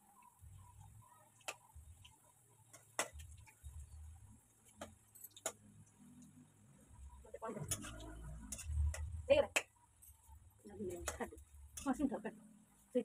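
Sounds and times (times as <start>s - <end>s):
metal spatula clinking on pan: 7.6s - 9.2s.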